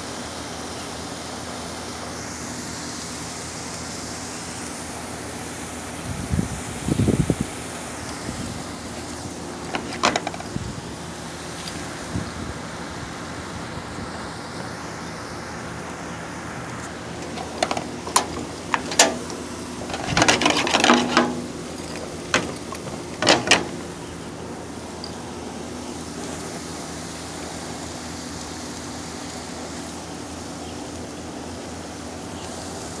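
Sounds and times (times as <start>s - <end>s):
sharp clicks and knocks: 9.6s - 10.6s, 16.8s - 24.0s.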